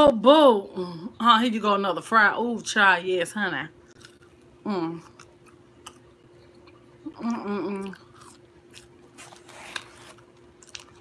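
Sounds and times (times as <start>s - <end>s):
person chewing crunchy fry: 3.8s - 11.0s
person humming: 7.1s - 8.0s.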